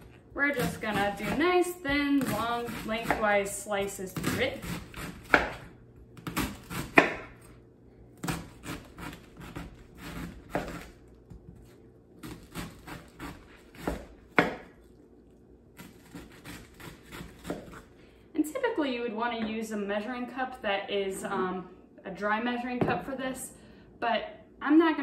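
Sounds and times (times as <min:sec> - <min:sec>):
knife crunching through cabbage: 0:08.2 - 0:17.9.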